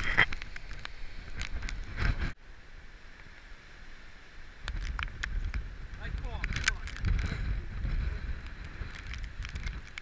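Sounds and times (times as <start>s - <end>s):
wind buffeting microphone: 4.5s - 10.0s.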